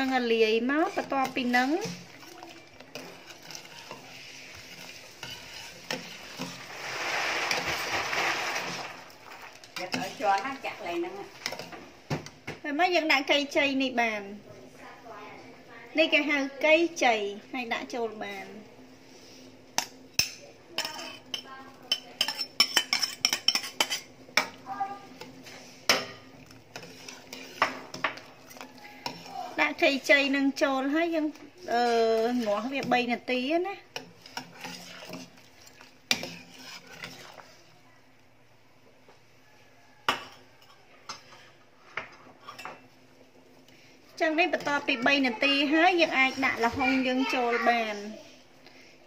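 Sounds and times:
liquid swishing: 0:00.7 - 0:10.2, 0:34.0 - 0:37.7.

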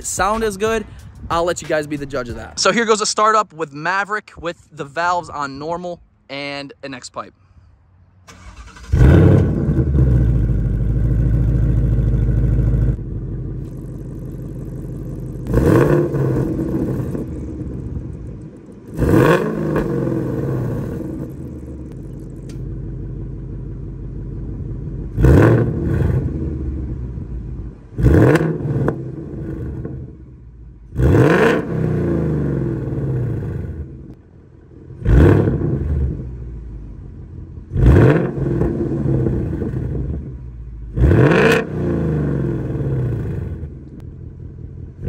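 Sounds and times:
car engine starting and idling: 0:08.0 - 0:45.0
car engine revving: 0:08.3 - 0:23.8, 0:24.8 - 0:34.2, 0:34.9 - 0:36.6, 0:37.6 - 0:44.1.

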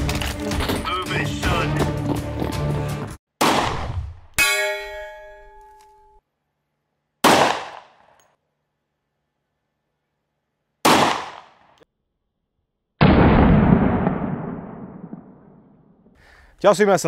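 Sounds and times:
pistol shots: 0:03.4 - 0:04.0, 0:07.2 - 0:08.2, 0:10.8 - 0:11.8
long dull boom: 0:13.0 - 0:16.1.

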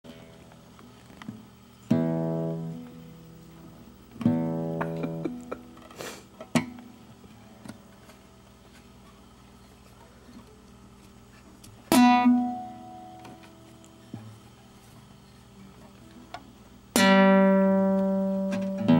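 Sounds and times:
guitar strings strummed: 0:01.8 - 0:07.8, 0:11.9 - 0:14.3, 0:16.9 - 0:18.9.

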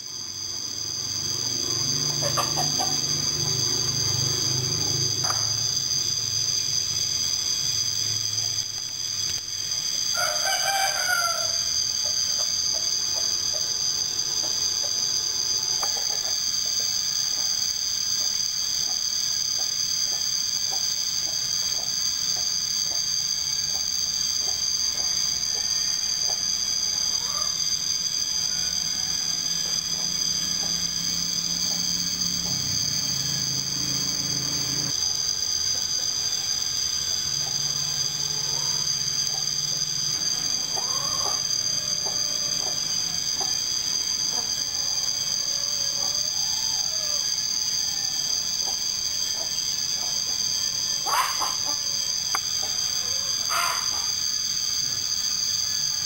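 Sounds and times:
rooster crowing: 0:01.2 - 0:05.7, 0:09.9 - 0:16.4, 0:23.2 - 0:35.0, 0:35.8 - 0:54.6
chicken clucking: 0:02.2 - 0:03.0, 0:51.1 - 0:51.8.

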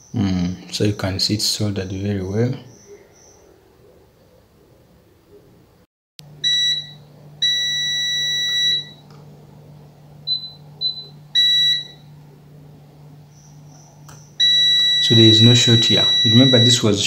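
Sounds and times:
multimeter beeps: 0:06.4 - 0:09.0, 0:10.3 - 0:12.0, 0:13.4 - 0:17.0.

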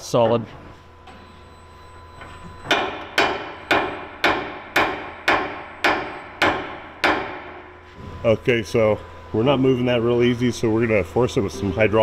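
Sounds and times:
hammer striking metal pin: 0:02.6 - 0:07.6.

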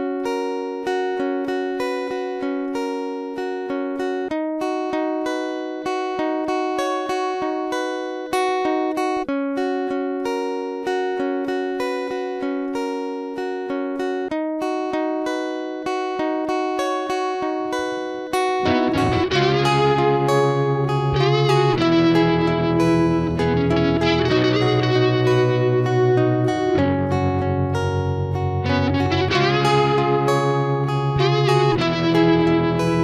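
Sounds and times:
plucked-string background music: 0:00.0 - 0:33.0
bass line: 0:18.6 - 0:20.5, 0:21.2 - 0:33.0.

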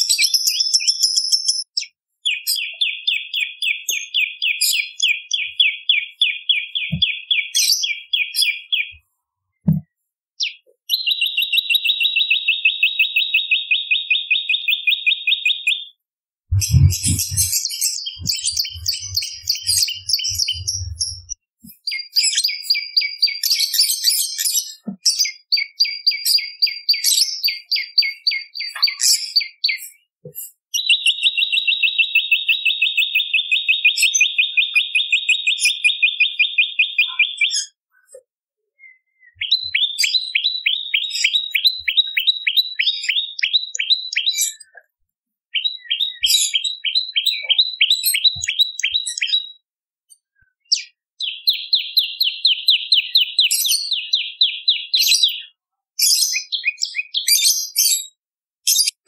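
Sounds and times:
bird rapid sharp chirps: 0:16.5 - 0:23.4, 0:30.8 - 0:37.7, 0:39.2 - 0:44.4, 0:45.5 - 0:49.5.

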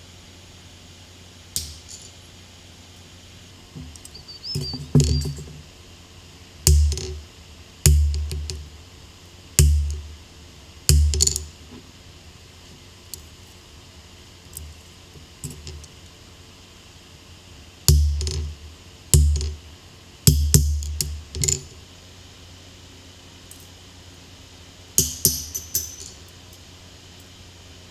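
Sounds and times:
hammer striking metal on anvil: 0:06.7 - 0:07.2, 0:07.9 - 0:08.6, 0:09.6 - 0:10.1, 0:10.9 - 0:11.5, 0:17.9 - 0:18.5, 0:19.2 - 0:19.6, 0:25.0 - 0:26.2
light metal clinks: 0:23.5 - 0:23.8, 0:25.0 - 0:26.6.

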